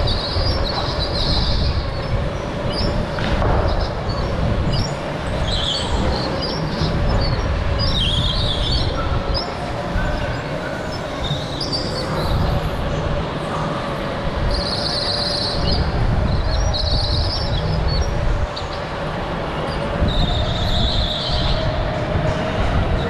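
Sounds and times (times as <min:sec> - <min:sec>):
tyres squealing: 0:00.0 - 0:13.0.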